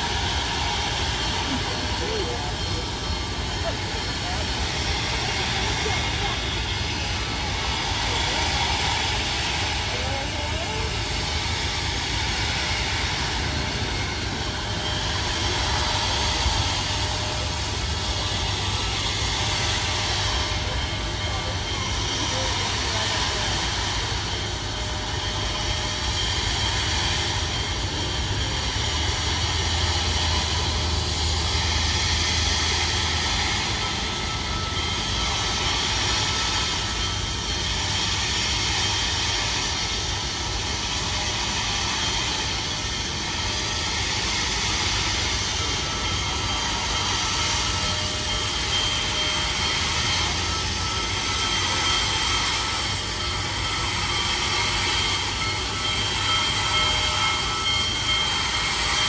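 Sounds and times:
steam locomotive hissing: 0.0s - 59.0s.

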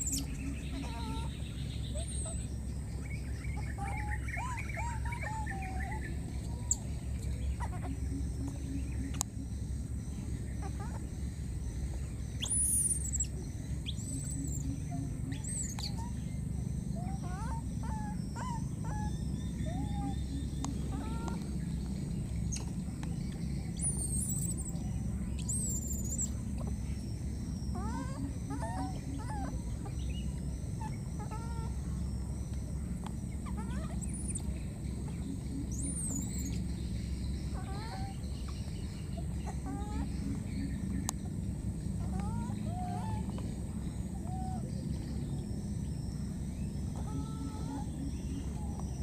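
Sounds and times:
small animal chirps and squeaks: 0.0s - 1.3s, 12.4s - 16.3s, 23.7s - 26.8s, 33.4s - 34.5s, 35.4s - 36.7s.

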